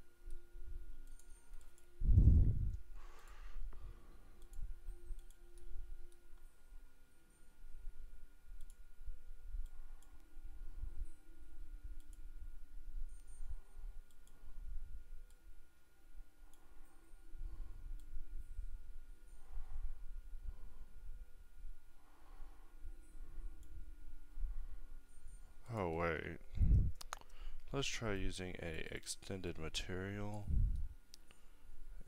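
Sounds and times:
faint high hum: 0:00.0 - 0:32.0
computer mouse and keyboard clicks: 0:01.0 - 0:01.9, 0:04.4 - 0:06.2, 0:27.0 - 0:27.4.

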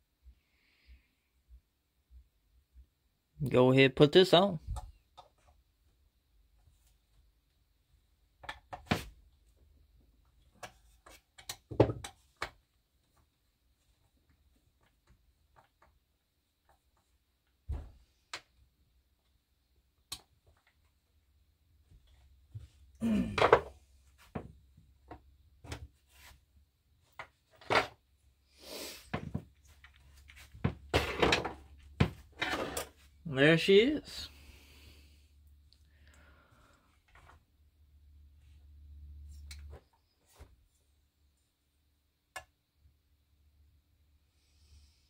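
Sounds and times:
clicks and knocks of parts: 0:10.3 - 0:12.6.

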